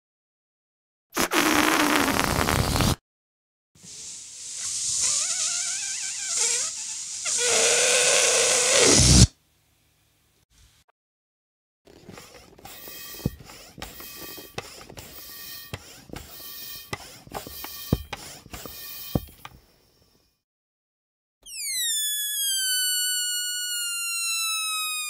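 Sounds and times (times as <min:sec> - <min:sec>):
air squealing out of balloon: 0:01.2 - 0:03.0, 0:03.8 - 0:09.3, 0:21.4 - 0:25.0
squeaky rubber balloon rustling: 0:03.9 - 0:09.3, 0:11.9 - 0:19.4, 0:21.4 - 0:25.0.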